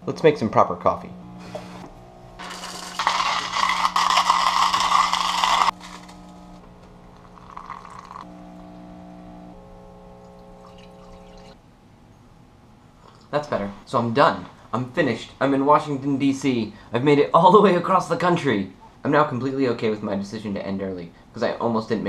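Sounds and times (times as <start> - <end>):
hot water pouring onto coffee grounds: 7.1 - 8.3, 10.6 - 11.6
coffee pouring into a mug: 7.1 - 8.4, 10.2 - 11.6.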